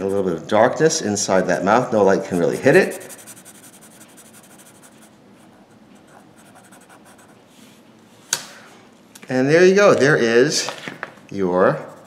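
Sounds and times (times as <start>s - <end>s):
marker scratching on paper: 2.2s - 5.1s, 6.0s - 7.4s.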